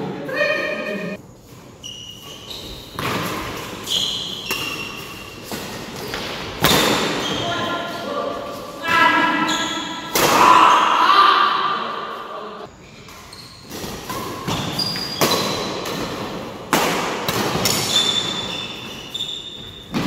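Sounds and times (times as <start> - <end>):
shoes squeaking on court: 0.9 - 10.1, 12.2 - 16.4, 17.3 - 20.0
racket hitting shuttlecock: 3.0 - 7.4, 13.1 - 19.1.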